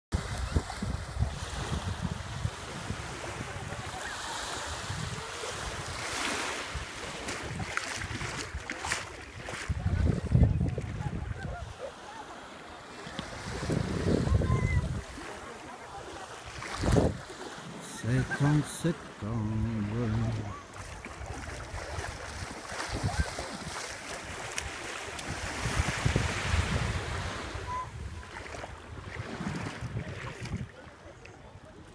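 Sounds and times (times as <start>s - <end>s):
wind buffeting microphone: 0.2s - 4.0s, 6.7s - 11.8s, 13.4s - 15.2s, 16.6s - 17.2s, 24.6s - 30.8s
small waves lapping on sand: 0.2s - 31.9s.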